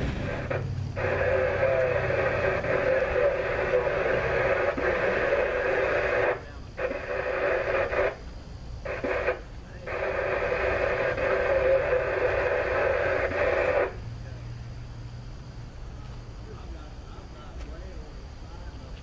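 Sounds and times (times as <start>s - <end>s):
radio transmission through speaker: 0.0s - 14.6s.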